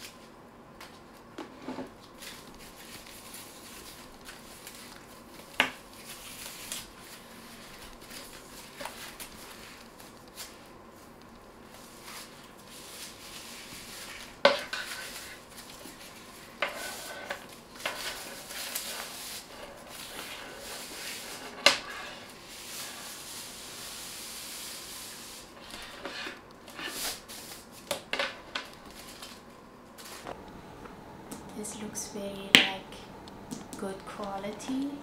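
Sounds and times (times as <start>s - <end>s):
plastic wrapping rustling: 1.9s - 21.6s, 26.7s - 35.0s.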